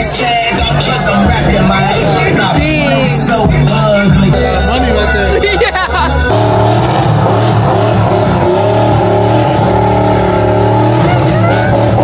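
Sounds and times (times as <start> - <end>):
vehicle engine running loudly: 6.3 - 12.0.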